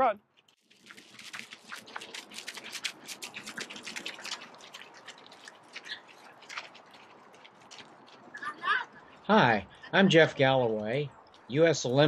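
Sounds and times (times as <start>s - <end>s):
running footsteps on gravel: 0.7s - 9.0s.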